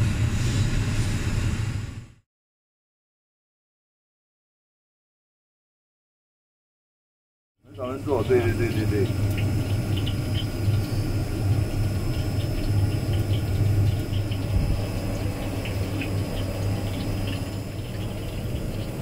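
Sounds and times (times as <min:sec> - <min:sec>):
steady low hum: 0:00.0 - 0:02.2, 0:07.7 - 0:19.0.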